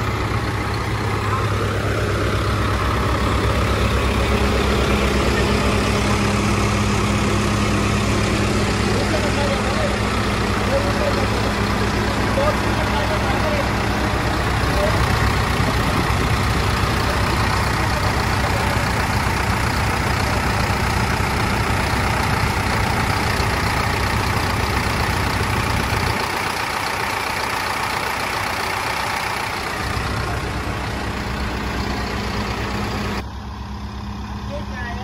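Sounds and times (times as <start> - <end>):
diesel engine idling: 0.0 - 35.0.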